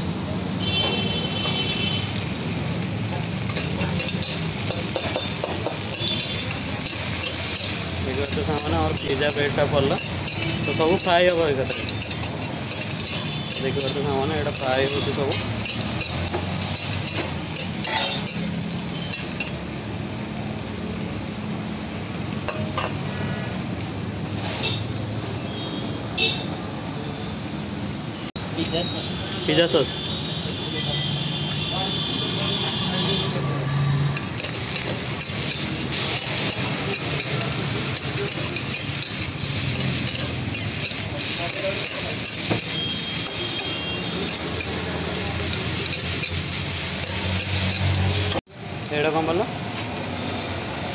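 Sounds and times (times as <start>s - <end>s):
food sizzling in a wok: 0.0s - 50.9s
spatula clinking and scraping pan: 3.0s - 19.8s, 22.4s - 23.2s, 34.0s - 48.4s.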